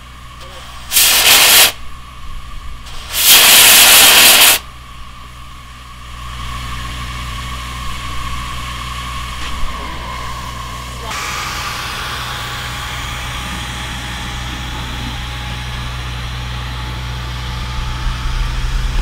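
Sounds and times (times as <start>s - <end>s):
steam venting loud hiss: 0.0s - 1.9s, 2.8s - 4.7s, 6.3s - 19.0s
quiet steady steam hiss: 0.0s - 7.1s.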